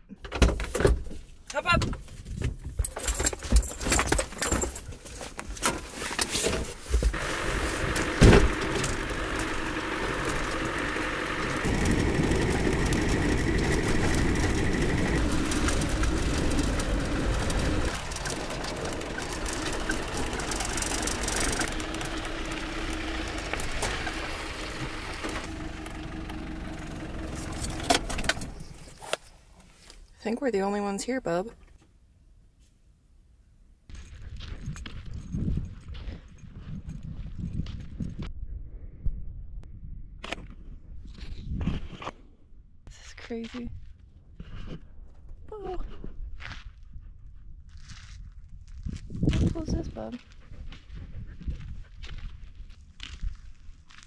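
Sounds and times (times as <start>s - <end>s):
truck engine and road noise: 1.2s - 36.2s
clunks and knocks: 5.6s - 29.2s.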